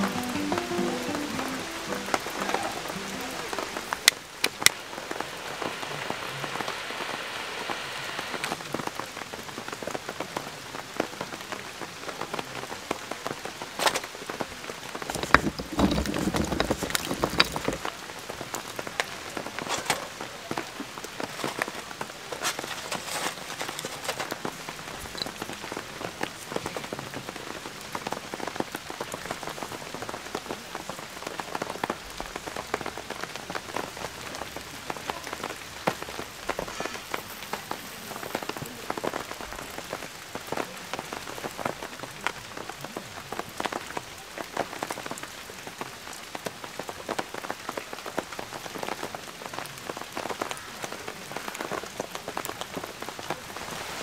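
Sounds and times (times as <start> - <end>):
rain pattering: 0.0 - 54.0.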